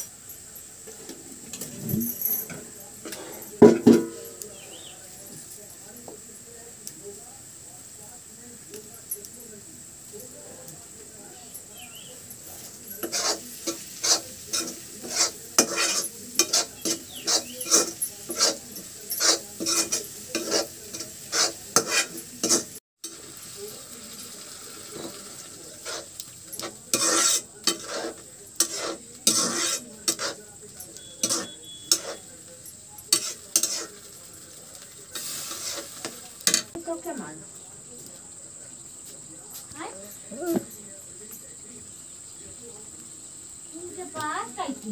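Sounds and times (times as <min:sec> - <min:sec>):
metal spatula scraping a pan: 0:00.9 - 0:04.9, 0:11.7 - 0:23.4, 0:24.9 - 0:34.2, 0:35.1 - 0:36.8
frying sizzle: 0:02.6 - 0:39.2.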